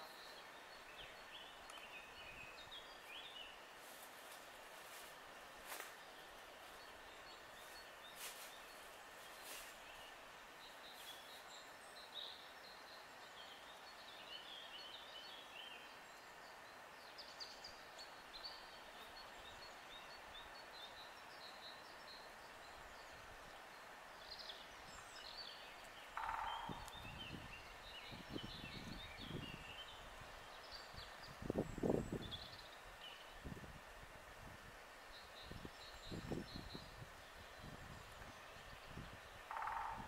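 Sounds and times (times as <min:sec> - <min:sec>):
background hiss: 0:00.0 - 0:40.0
songbirds chirping: 0:00.0 - 0:40.0
wind buffeting microphone: 0:26.6 - 0:30.4, 0:31.0 - 0:32.6, 0:35.4 - 0:40.0.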